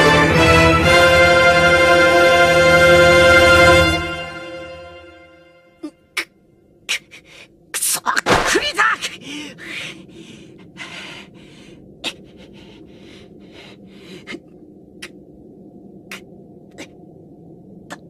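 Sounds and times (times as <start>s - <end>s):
man breathing heavily and gasping: 9.1s - 14.5s.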